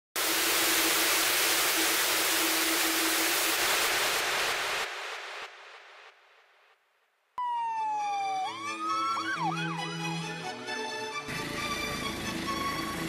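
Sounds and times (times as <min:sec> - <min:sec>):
static hiss: 0:00.2 - 0:07.4.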